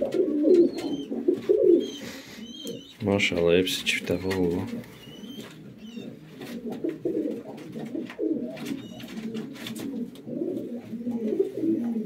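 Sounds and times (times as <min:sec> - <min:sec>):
pigeons cooing: 0:00.0 - 0:12.0
faint clicks and rustles: 0:03.2 - 0:12.0.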